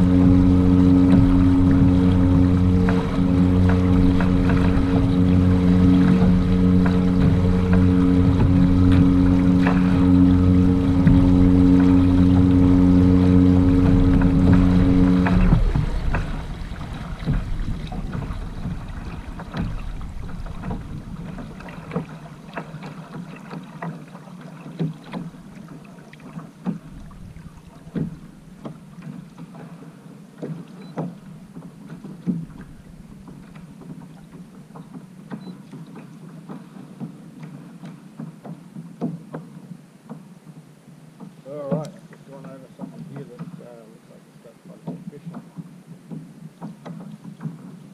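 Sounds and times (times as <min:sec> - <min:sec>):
steady low hum: 0:00.0 - 0:30.4
waves tapping on kayak hull: 0:00.0 - 0:47.9.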